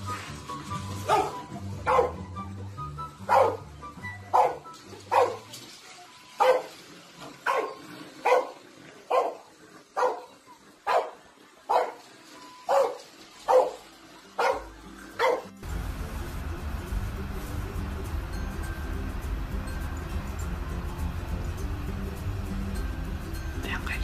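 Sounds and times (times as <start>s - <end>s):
dog barking: 1.0s - 2.3s, 3.3s - 3.7s, 4.3s - 5.5s, 6.4s - 6.7s, 7.4s - 12.0s, 12.7s - 13.8s, 14.4s - 15.6s.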